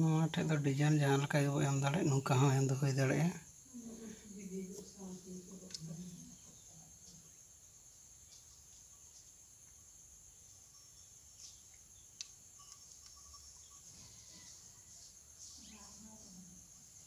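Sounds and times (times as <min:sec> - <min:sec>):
faint high-pitched hiss: 0:00.0 - 0:17.0
faint ticks: 0:05.6 - 0:06.0, 0:11.4 - 0:14.6.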